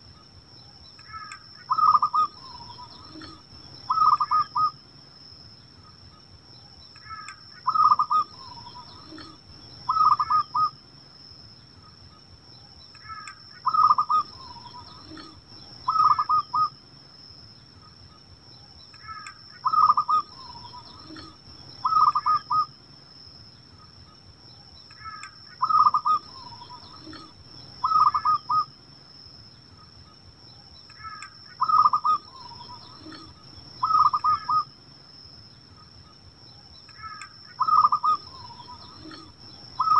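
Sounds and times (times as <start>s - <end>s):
dove cooing: 1.1s - 4.8s, 7.1s - 10.7s, 13.1s - 16.7s, 19.0s - 22.7s, 25.0s - 28.7s, 31.0s - 34.7s, 37.0s - 39.9s.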